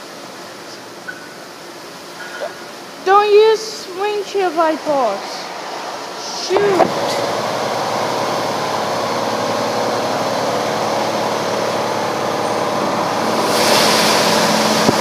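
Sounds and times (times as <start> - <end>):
car wash machine hum: 0.0 - 15.0
high-pressure water spray hissing: 2.2 - 15.0.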